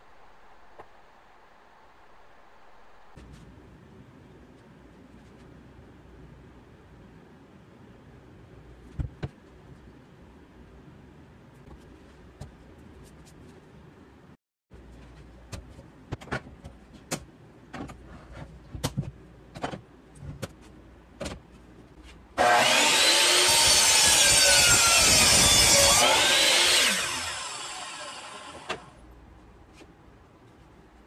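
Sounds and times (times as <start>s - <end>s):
mitre saw motor running: 22.4s - 28.9s.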